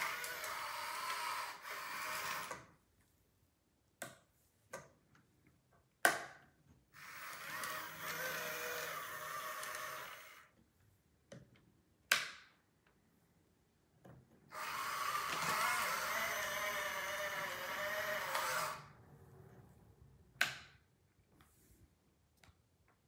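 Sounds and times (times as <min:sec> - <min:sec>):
electric motors whining: 0:00.0 - 0:02.6, 0:07.0 - 0:10.5, 0:14.5 - 0:19.0.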